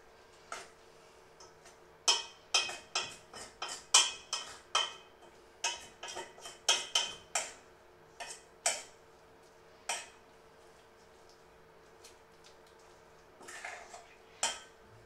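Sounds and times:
utensil scraping metal bowl: 13.4s - 14.6s.

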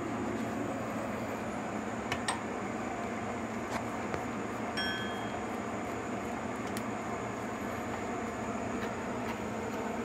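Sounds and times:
brief high metallic ping: 4.8s - 5.4s.

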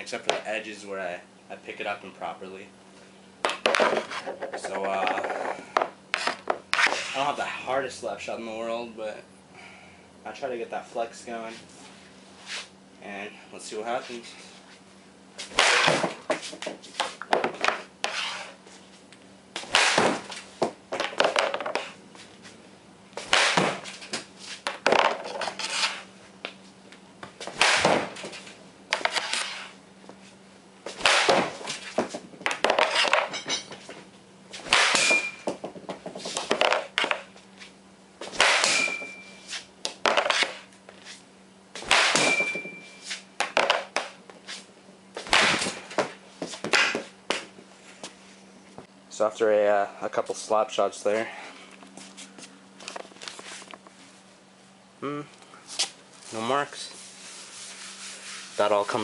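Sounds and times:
hockey stick slap shot crack: 15.6s - 16.1s, 19.6s - 20.2s, 23.2s - 23.8s, 27.6s - 28.1s, 31.0s - 31.6s, 34.7s - 35.2s, 38.3s - 38.9s, 41.8s - 42.4s, 45.2s - 45.8s
high ringing: 35.0s - 35.5s, 38.7s - 39.5s, 42.2s - 43.1s.

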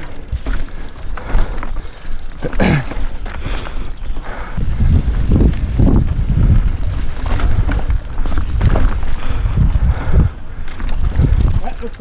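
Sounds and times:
bike rattling on trail: 0.0s - 12.0s
wind buffeting microphone: 3.3s - 12.0s.

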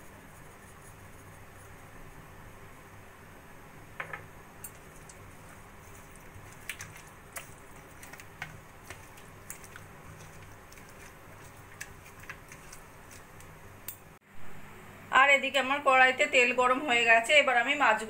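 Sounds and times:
hand squishing wet fish: 5.0s - 13.6s.

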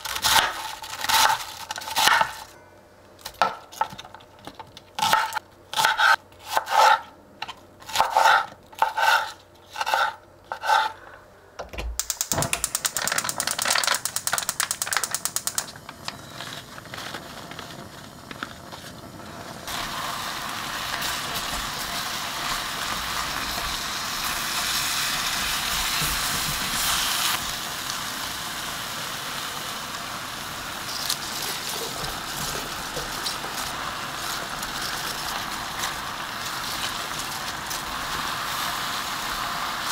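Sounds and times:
sauce sizzling and simmering: 19.0s - 39.9s.

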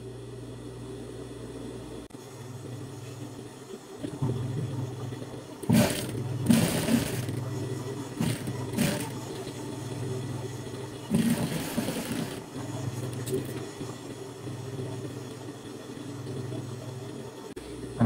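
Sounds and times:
sewing machine stitching: 5.6s - 7.5s, 8.1s - 9.5s, 11.1s - 12.5s.

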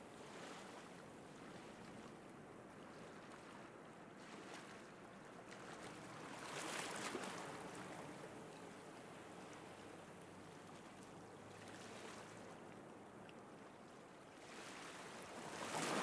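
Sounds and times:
sea surf on sandy beach: 14.4s - 16.0s.

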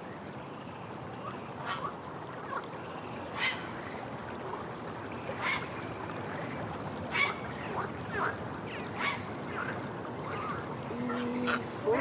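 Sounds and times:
steady background hiss: 0.0s - 12.0s
herons croaking: 7.0s - 12.0s.

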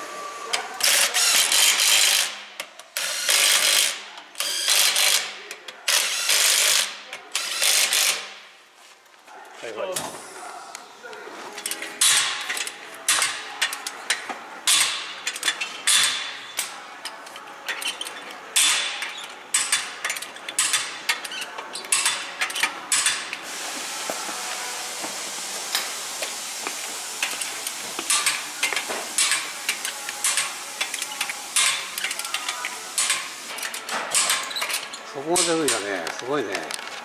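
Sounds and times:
wrench clicking on lug nuts: 0.8s - 8.3s, 11.6s - 23.4s, 27.2s - 35.9s
steady hiss: 23.4s - 33.7s.

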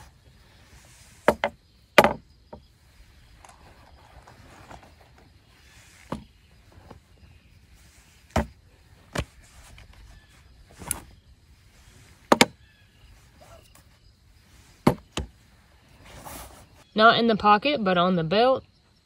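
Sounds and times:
items knocking on wooden table: 1.3s - 2.2s.

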